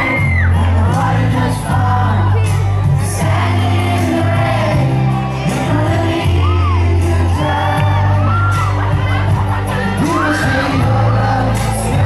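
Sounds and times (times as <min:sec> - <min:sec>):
band with heavy bass line: 0:00.0 - 0:12.0
man singing into microphone: 0:00.0 - 0:12.0
audience shrieking: 0:06.4 - 0:11.5.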